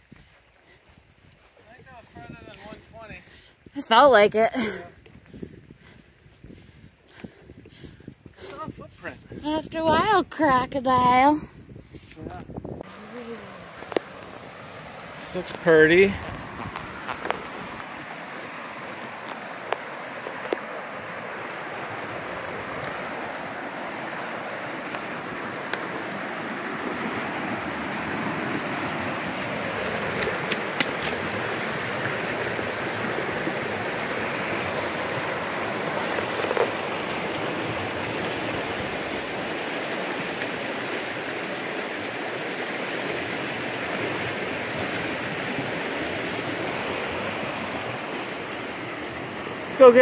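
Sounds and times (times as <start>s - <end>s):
running water rushing: 12.6s - 50.0s.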